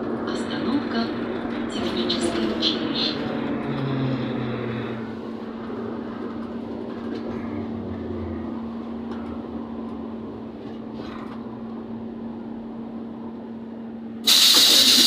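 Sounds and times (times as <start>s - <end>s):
trolleybus electrical hum: 0.0s - 15.0s
compressed air hiss: 14.3s - 15.0s.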